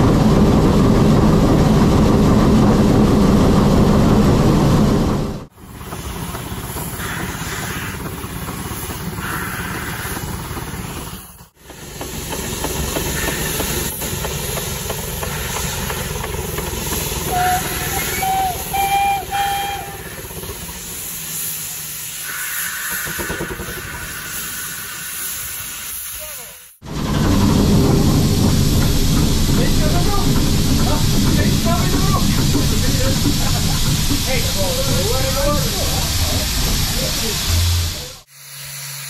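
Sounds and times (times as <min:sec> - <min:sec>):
steam rotary snowplow: 0:00.0 - 0:39.0
steam whistle blasts: 0:17.2 - 0:20.2.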